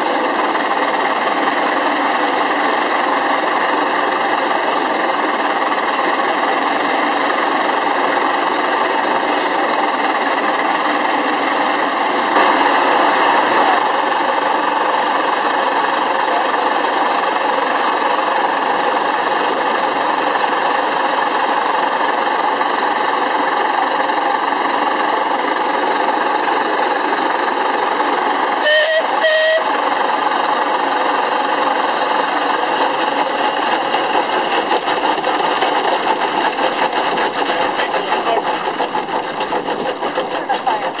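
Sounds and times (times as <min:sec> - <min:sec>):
steam engine mechanical clatter: 0:00.0 - 0:41.0
short high steam toots: 0:28.6 - 0:29.9.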